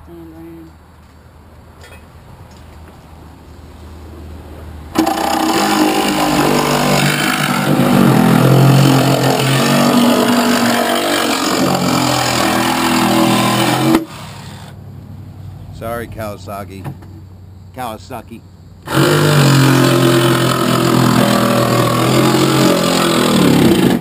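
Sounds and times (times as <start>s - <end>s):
power saw cutting fibreglass: 4.9s - 14.8s, 18.8s - 24.0s.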